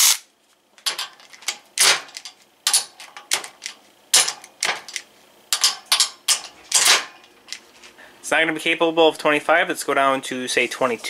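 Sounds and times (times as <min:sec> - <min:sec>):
hand tools clicking and clinking: 0:00.8 - 0:07.7.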